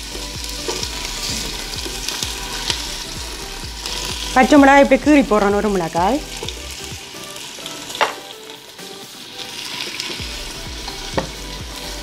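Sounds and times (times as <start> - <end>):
onions sizzling in oil: 0.0 - 12.0.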